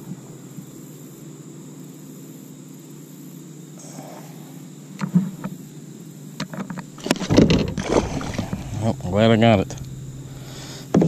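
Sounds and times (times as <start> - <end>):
steady low rumble: 7.8 - 10.9.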